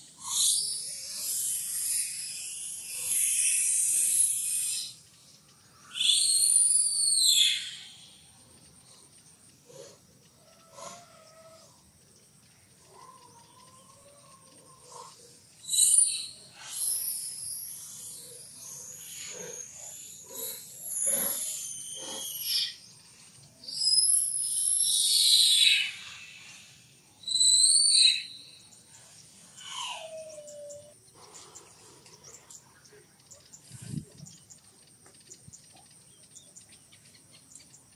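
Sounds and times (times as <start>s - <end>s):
infant monkey crying and screaming: 0.0s - 5.0s, 12.9s - 22.8s, 23.7s - 31.0s.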